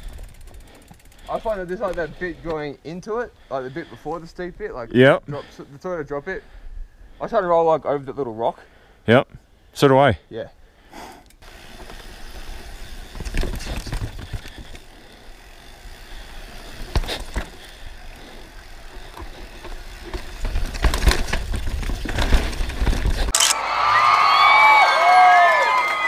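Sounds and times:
tyres rumbling on rocky trail: 0:00.0 - 0:04.8, 0:11.4 - 0:23.3
bike knocking on rocks: 0:13.1 - 0:14.9, 0:16.7 - 0:17.8, 0:18.8 - 0:23.3.

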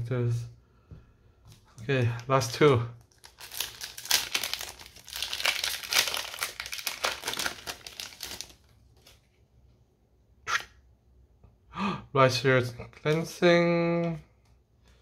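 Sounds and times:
foil wrapper ripping open: 0:03.0 - 0:09.2.

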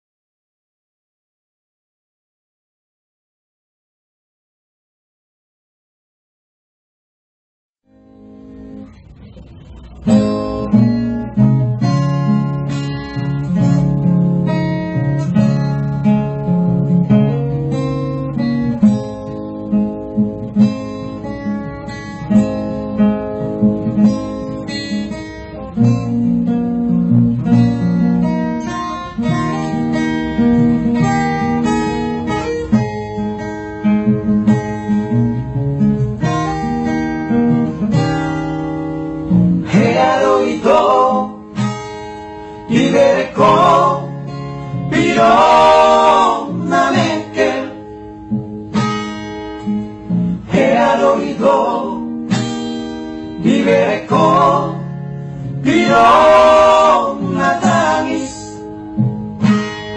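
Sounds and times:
acoustic guitar music: 0:07.9 - 0:59.9
person singing: 0:39.7 - 0:41.4, 0:42.7 - 0:44.1, 0:44.9 - 0:47.8, 0:50.5 - 0:52.0, 0:53.4 - 0:54.8, 0:55.6 - 0:58.6.

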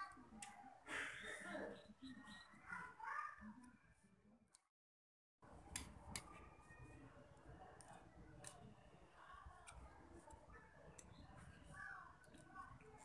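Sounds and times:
faint eating sounds: 0:05.4 - 0:13.0.

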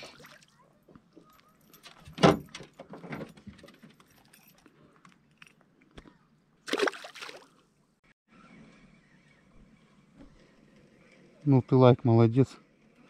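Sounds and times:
knocks and handling noises in boat: 0:00.9 - 0:06.2
fish splashing into water: 0:06.6 - 0:07.6.

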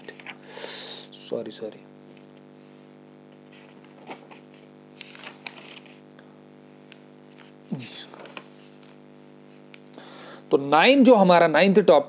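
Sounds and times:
paper rustling: 0:00.0 - 0:00.4, 0:03.3 - 0:06.1, 0:07.3 - 0:09.7
steady electrical hum: 0:00.0 - 0:12.0.

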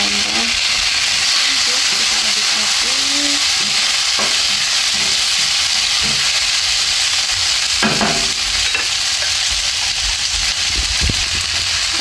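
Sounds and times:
vegetables sizzling in a wok: 0:00.0 - 0:12.0
utensil knocking against a wok: 0:03.6 - 0:06.4, 0:07.8 - 0:10.2.

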